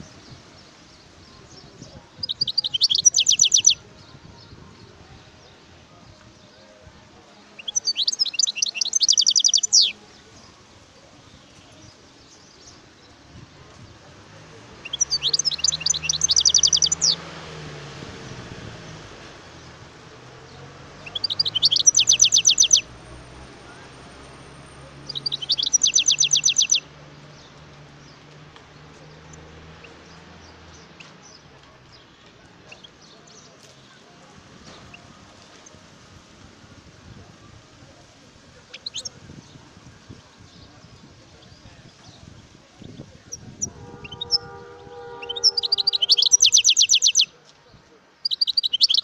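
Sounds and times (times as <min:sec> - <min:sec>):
finch singing trilled notes: 0:00.0 - 0:05.6, 0:07.3 - 0:13.2, 0:14.8 - 0:17.3, 0:20.9 - 0:23.3, 0:24.2 - 0:28.2, 0:38.6 - 0:39.6, 0:42.8 - 0:47.4, 0:48.2 - 0:49.0.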